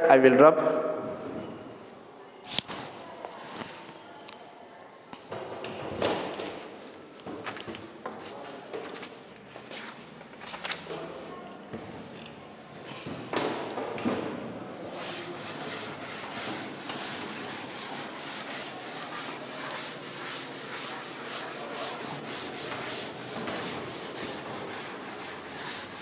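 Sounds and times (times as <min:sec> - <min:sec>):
duster rubbing chalkboard: 0:14.7 - 0:26.0.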